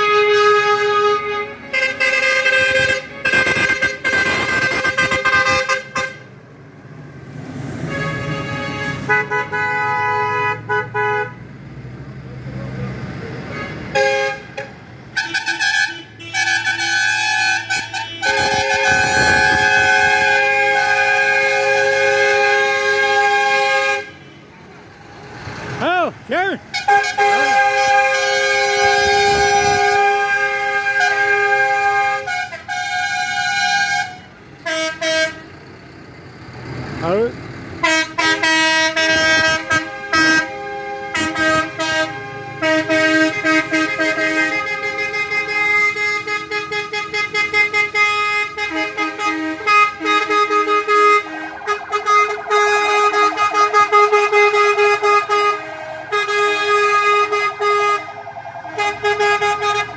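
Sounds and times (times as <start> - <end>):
vehicle horns honking: 0.0 - 6.3, 7.8 - 11.4, 13.5 - 24.6, 25.8 - 35.5, 37.8 - 59.9
road noise: 0.0 - 59.9.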